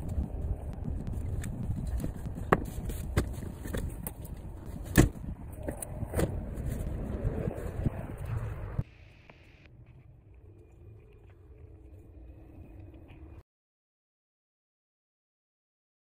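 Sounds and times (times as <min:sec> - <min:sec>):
steady low rumble: 0:00.0 - 0:13.4
car seat clicks and knocks: 0:04.9 - 0:05.2.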